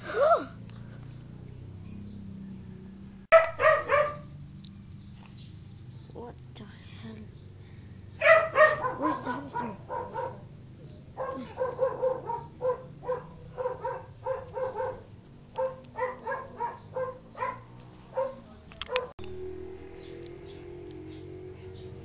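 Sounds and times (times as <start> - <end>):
dog barking: 3.3 - 4.3, 8.2 - 10.5, 11.1 - 19.1.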